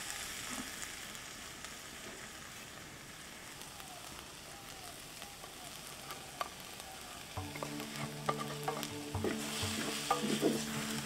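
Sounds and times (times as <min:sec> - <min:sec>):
vegetables sizzling in a pan: 0:00.0 - 0:11.0
soft background music: 0:07.3 - 0:11.0
wooden spoon scraping clay pan: 0:07.5 - 0:11.0.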